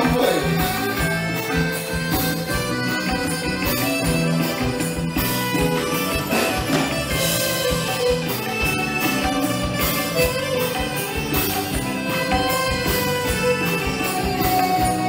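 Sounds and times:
live band playing dance music: 0.0s - 15.0s.

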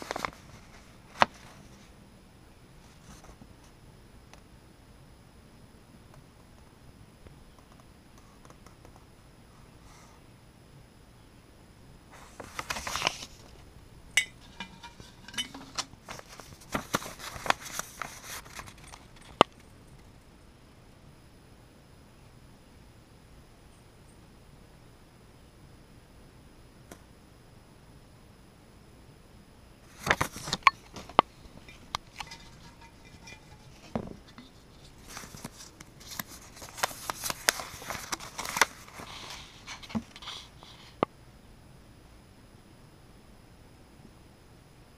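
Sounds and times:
paper notes rustling: 0.0s - 1.9s, 12.1s - 13.7s, 14.4s - 19.4s, 29.9s - 40.9s
glass jar clinking: 14.2s - 15.9s, 30.5s - 30.9s, 31.6s - 34.4s.

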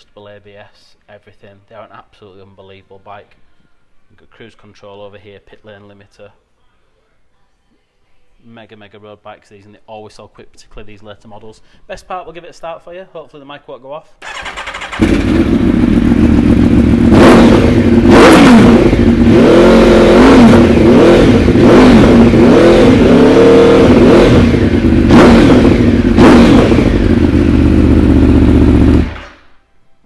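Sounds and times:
motorcycle engine revving: 14.2s - 29.5s.

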